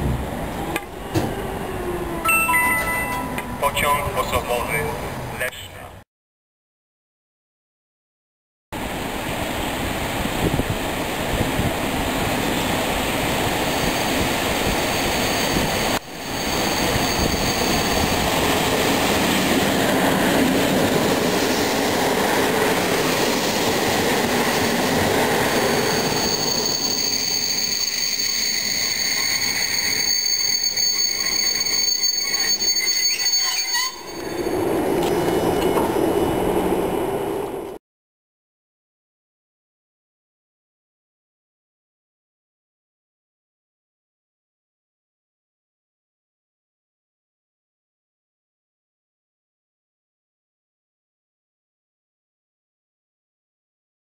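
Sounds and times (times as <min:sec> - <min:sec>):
high steady wheel squeal: 0:14.8 - 0:18.5, 0:24.4 - 0:36.0
train wheels on rails: 0:33.6 - 0:37.8.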